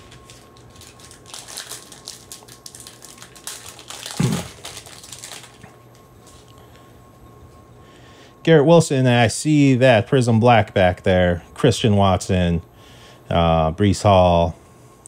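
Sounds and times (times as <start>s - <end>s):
foil pack crinkling and tearing: 0.0s - 6.5s.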